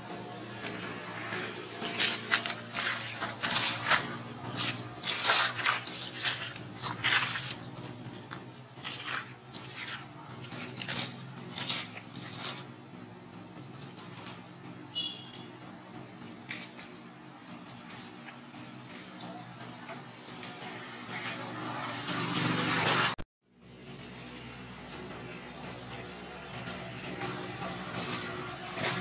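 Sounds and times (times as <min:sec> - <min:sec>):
dry leaves crackling and rustling: 0:00.3 - 0:14.5, 0:25.0 - 0:29.0.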